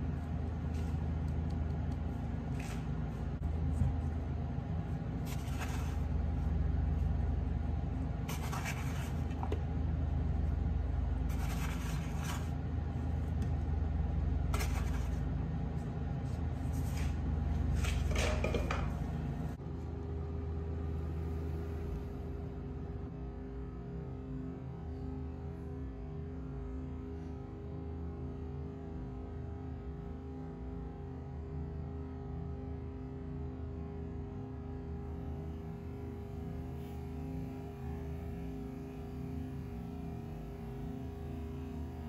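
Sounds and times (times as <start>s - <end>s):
low machine hum: 0.0s - 42.0s.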